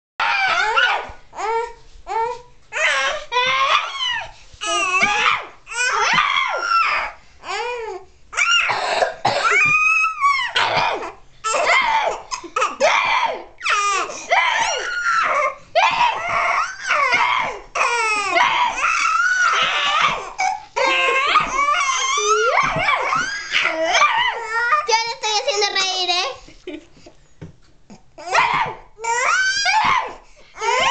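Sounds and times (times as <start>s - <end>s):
baby laughing and squealing: 9.4s - 24.9s.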